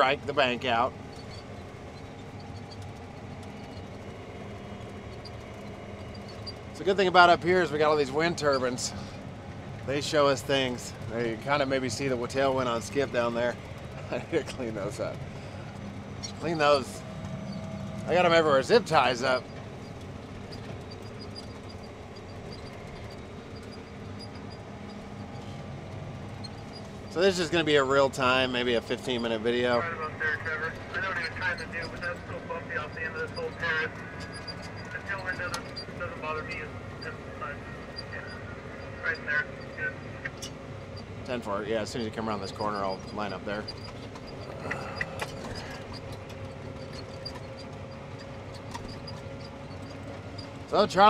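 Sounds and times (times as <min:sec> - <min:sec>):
tractor engine drone from cab: 0:00.0 - 0:51.0.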